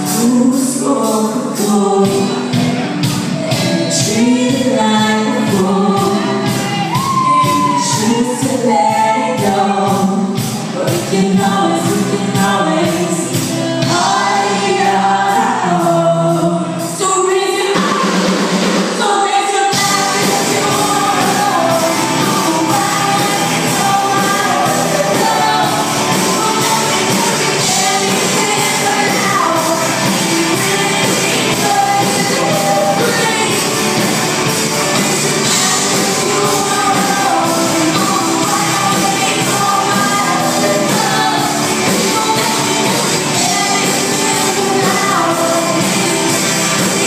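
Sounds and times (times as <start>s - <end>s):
keyboards: 0.0s - 47.0s
steady drum beat: 0.0s - 47.0s
woman singing: 0.0s - 47.0s
electric guitar: 19.7s - 47.0s.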